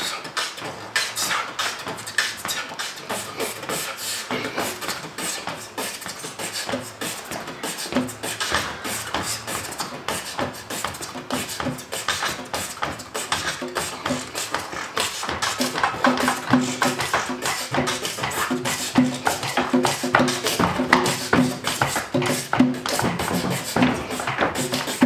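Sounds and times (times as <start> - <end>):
hand drums struck with hands: 6.7 - 25.0.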